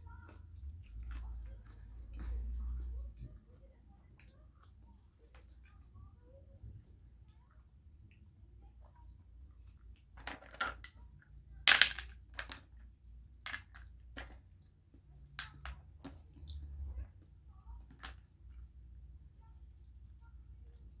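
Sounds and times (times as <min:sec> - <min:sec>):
shells clicking and cracking: 0:11.7 - 0:12.8.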